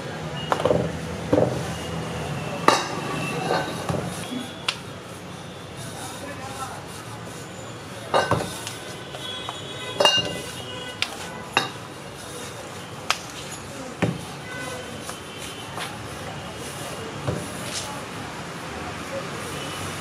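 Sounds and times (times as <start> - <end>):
metal utensils and dishes clinking: 2.7 - 4.1, 8.0 - 8.8, 10.0 - 12.4.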